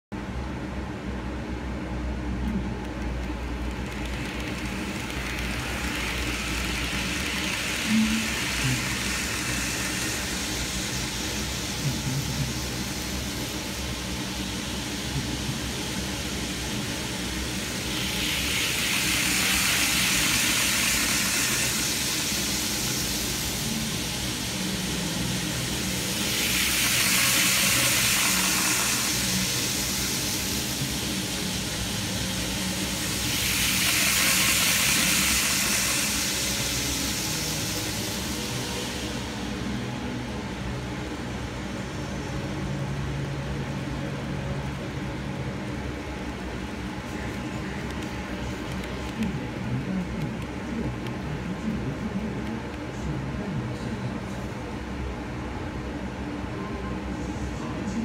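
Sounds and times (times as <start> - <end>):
model train motor whirring: 2.8 - 39.8.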